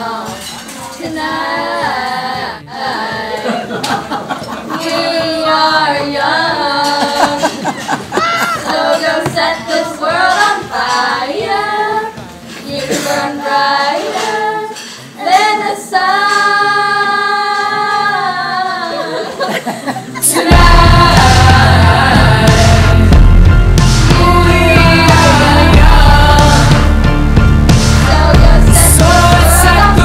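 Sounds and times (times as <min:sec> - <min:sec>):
girls singing unaccompanied: 0:00.0 - 0:27.1, 0:27.9 - 0:30.0
loud music with heavy bass: 0:20.4 - 0:30.0.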